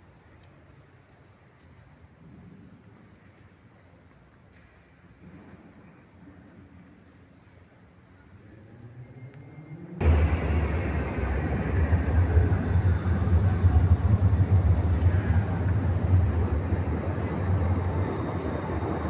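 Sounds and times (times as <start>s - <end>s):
low street rumble: 10.0s - 19.0s.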